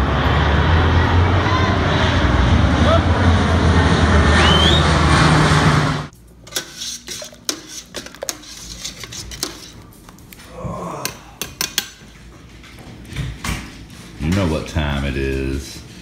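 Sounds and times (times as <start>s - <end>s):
turboprop plane drone overhead: 0.0s - 6.1s.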